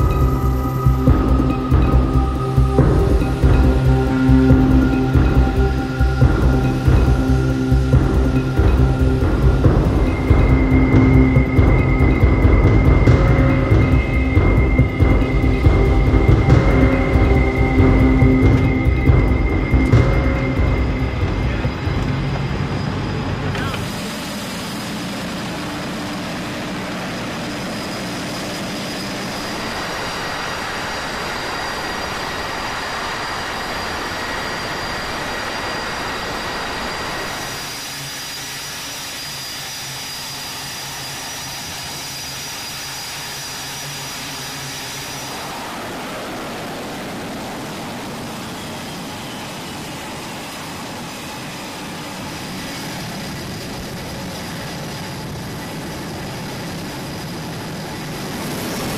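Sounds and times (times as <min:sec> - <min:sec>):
jet engines roaring: 0:00.0 - 0:58.9.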